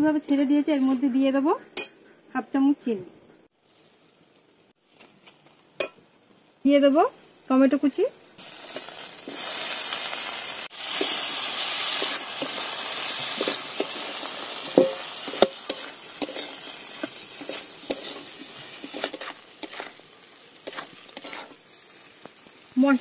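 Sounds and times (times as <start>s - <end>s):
tomato sizzling in oil: 0.0s - 23.0s
metal spatula scraping pan: 12.0s - 20.0s, 20.6s - 21.6s.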